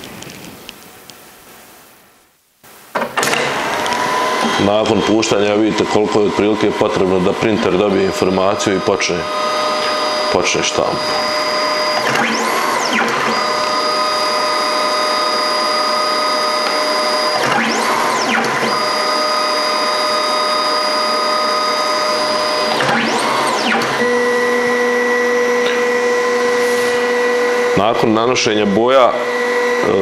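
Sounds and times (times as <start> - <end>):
printer motor whine: 3.0 - 30.0
printer paper rewind sweep: 3.3 - 30.0.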